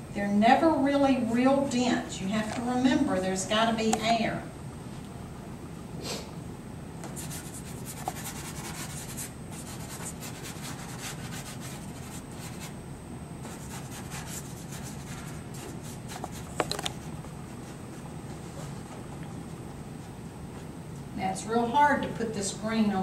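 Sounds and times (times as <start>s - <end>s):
pastel scratching on paper: 7.1s - 12.8s, 13.4s - 16.6s.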